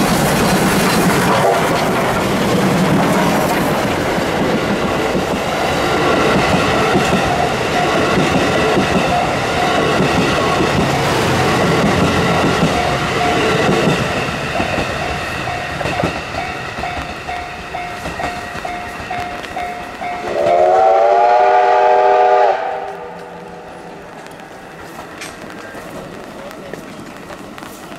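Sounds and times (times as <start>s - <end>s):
train coaches rumbling and clacking: 0.0s - 27.9s
level-crossing warning bell: 6.6s - 21.2s
steam locomotive whistle: 20.0s - 23.9s.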